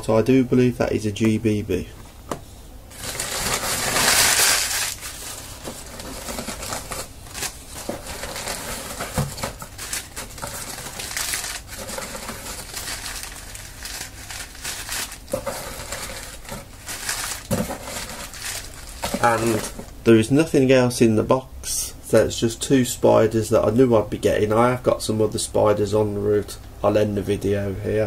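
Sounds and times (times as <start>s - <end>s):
newspaper rustling and crinkling: 2.9s - 20.0s.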